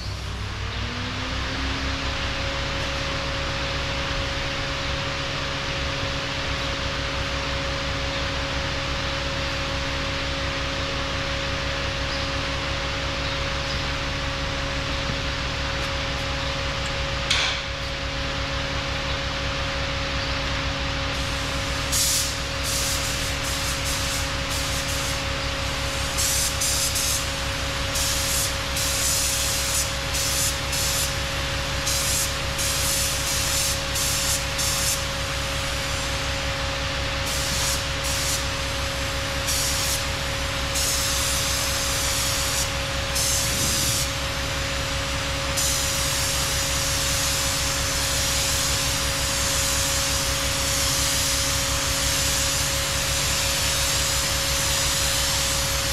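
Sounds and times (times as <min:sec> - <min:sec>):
steady machine hum: 0:00.0 - 0:55.9
paint spray gun hissing: 0:21.1 - 0:36.3, 0:37.2 - 0:55.9.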